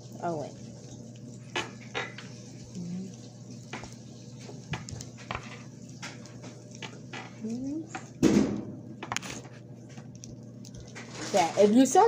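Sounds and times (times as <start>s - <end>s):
steady low hum: 0.0s - 12.0s
person humming: 2.8s - 3.2s.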